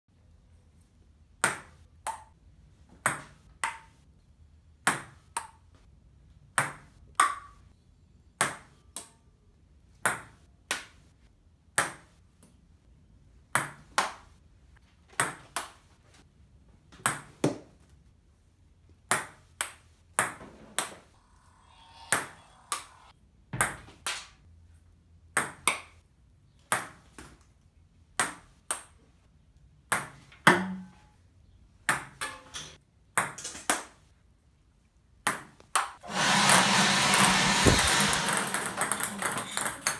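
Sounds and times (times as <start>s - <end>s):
table tennis ball clicks: 37.2s - 39.9s.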